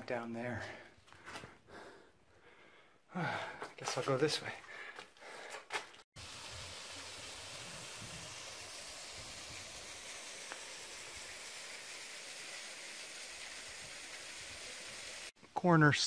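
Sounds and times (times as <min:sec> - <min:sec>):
steady outdoor hiss: 0:06.2 - 0:15.8.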